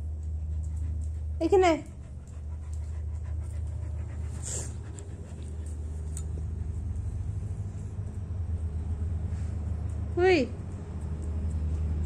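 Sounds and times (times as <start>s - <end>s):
dog panting: 0.0s - 8.0s
steady low hum: 0.0s - 12.0s
faint clicks: 0.1s - 6.5s.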